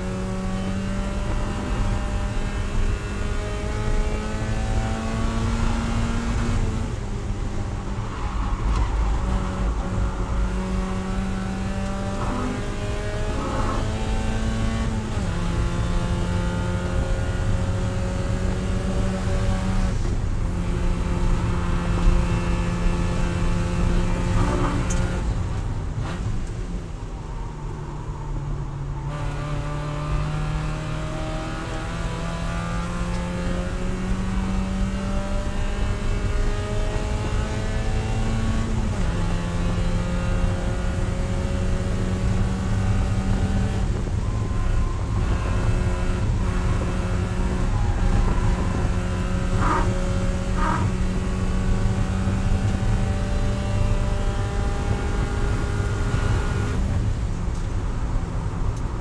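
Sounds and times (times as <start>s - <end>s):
car engine at high revs: 0.0s - 59.0s.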